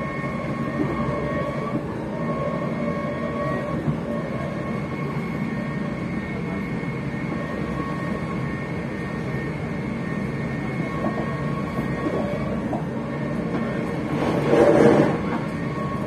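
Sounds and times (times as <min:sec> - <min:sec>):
train motors whining: 0:00.0 - 0:16.0
train rumbling on track: 0:00.0 - 0:16.0.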